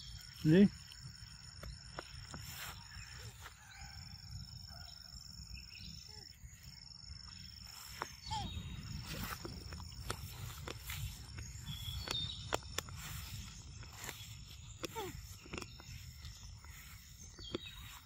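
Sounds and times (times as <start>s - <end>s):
high-pitched insect trill: 0.0s - 18.0s.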